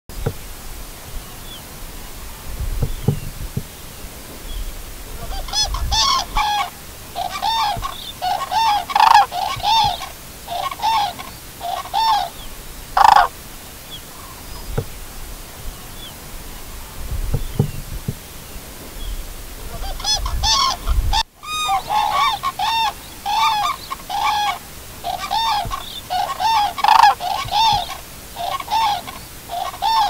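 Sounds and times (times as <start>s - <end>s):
wind noise rumble: 0.1s - 10.4s, 14.4s - 21.3s
cranes trumpeting calls: 5.1s - 13.4s, 19.6s - 30.0s.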